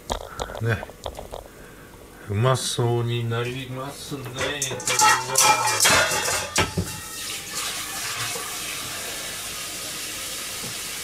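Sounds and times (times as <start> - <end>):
water running from a tap: 6.8 - 11.0.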